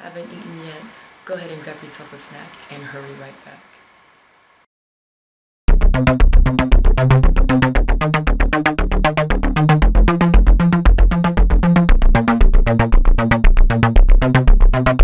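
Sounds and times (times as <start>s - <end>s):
steady electronic beat: 5.7s - 15.0s
synth bass line: 5.7s - 15.0s.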